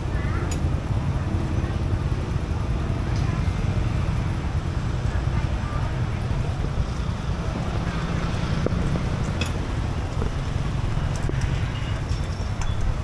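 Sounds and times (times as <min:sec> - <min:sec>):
street traffic rumble: 0:00.0 - 0:13.0
wind on microphone: 0:00.0 - 0:13.0.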